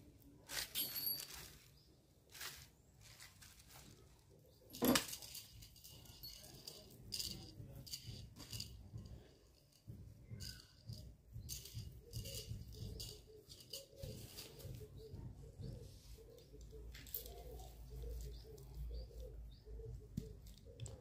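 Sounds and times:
faint rustling: 0:00.4 - 0:06.8
light rattling: 0:00.5 - 0:15.8.

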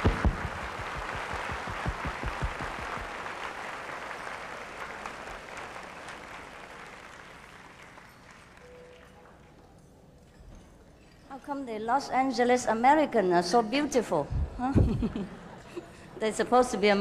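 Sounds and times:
low thumps: 0:00.0 - 0:03.2
audience applauding: 0:00.0 - 0:09.4.

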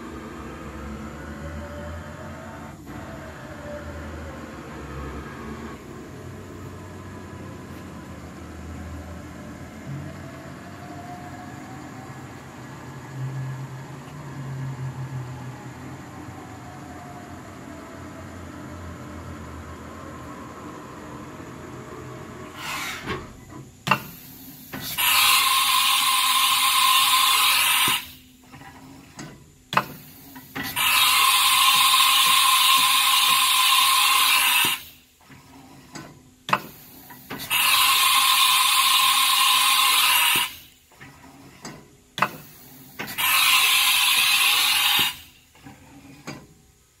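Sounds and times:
faint motor whirring: 0:00.0 - 0:47.0
compressed air hissing: 0:22.5 - 0:23.3, 0:23.9 - 0:28.4, 0:29.8 - 0:35.2, 0:36.5 - 0:40.8, 0:42.2 - 0:45.5.

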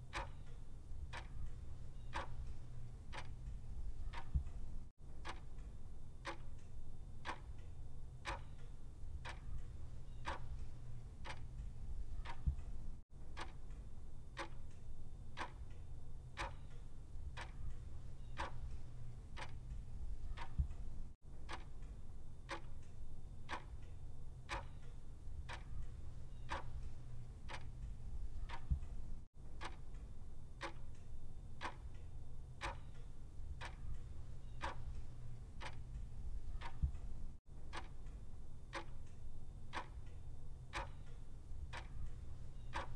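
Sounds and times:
clock ticking: 0:00.0 - 0:13.8, 0:14.4 - 0:14.8, 0:15.4 - 0:15.8, 0:16.4 - 0:23.9, 0:24.5 - 0:32.0, 0:32.6 - 0:42.9
low steady rumble: 0:08.9 - 0:16.2, 0:17.1 - 0:23.4, 0:25.2 - 0:32.6, 0:33.3 - 0:40.6.

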